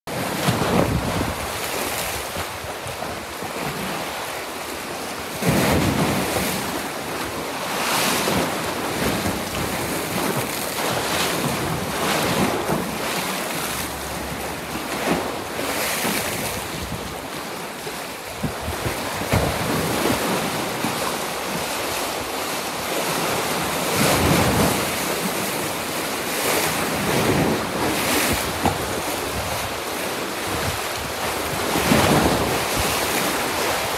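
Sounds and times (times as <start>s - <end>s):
waves breaking: 0.1s - 33.9s
wind buffeting microphone: 0.4s - 4.0s, 18.3s - 20.9s, 26.9s - 33.9s.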